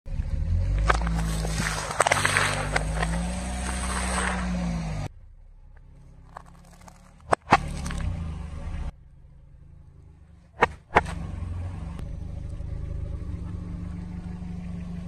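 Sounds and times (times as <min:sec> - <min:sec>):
car engine running: 0:00.1 - 0:15.0
tyre crunching cereal: 0:00.8 - 0:04.6, 0:06.2 - 0:08.0
sharp cracks: 0:00.8 - 0:04.7.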